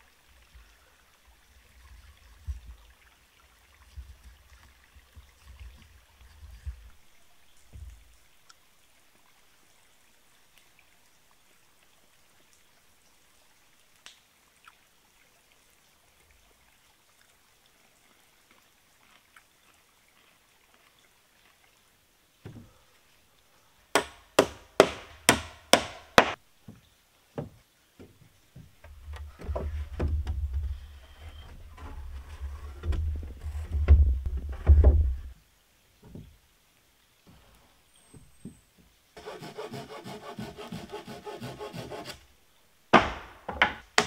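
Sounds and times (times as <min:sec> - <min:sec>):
tool striking timber: 0:24.0 - 0:26.4, 0:42.9 - 0:44.0.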